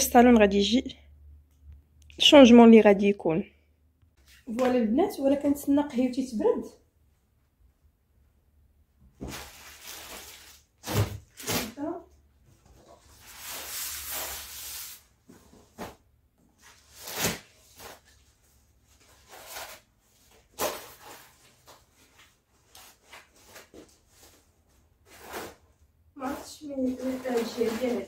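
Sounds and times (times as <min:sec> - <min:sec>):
fabric rustling: 0:26.2 - 0:28.0.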